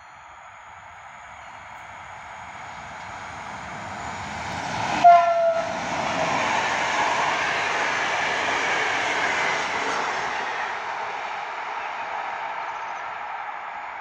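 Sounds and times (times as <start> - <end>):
train rolling past: 0.0 - 14.0
train horn blast: 5.0 - 5.8.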